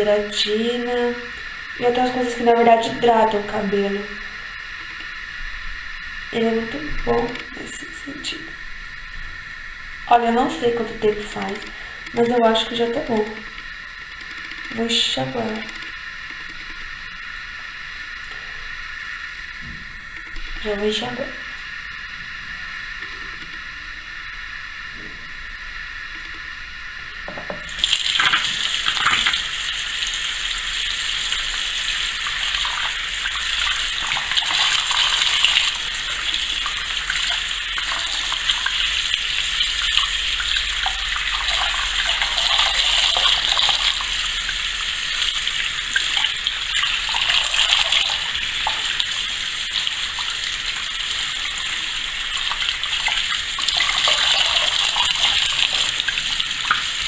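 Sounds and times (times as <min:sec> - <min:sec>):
tap water splashing into basin: 0:27.3 - 0:57.0.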